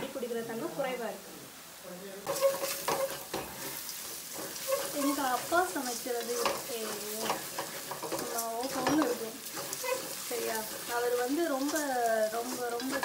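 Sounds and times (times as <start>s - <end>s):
oil sizzling: 0.2s - 13.0s
spatula scraping a pot: 2.3s - 13.0s.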